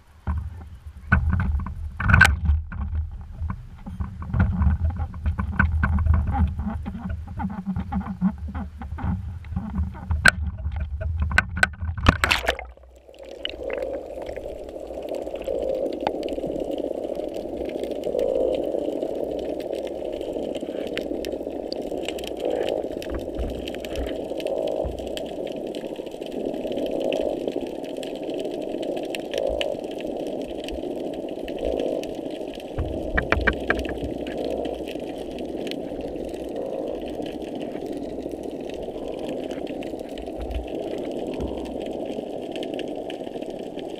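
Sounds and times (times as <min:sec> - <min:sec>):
underwater hum: 0:00.0 - 0:43.9
knocks and water noise: 0:00.2 - 0:16.6, 0:22.4 - 0:25.2, 0:32.7 - 0:34.9, 0:40.2 - 0:41.8.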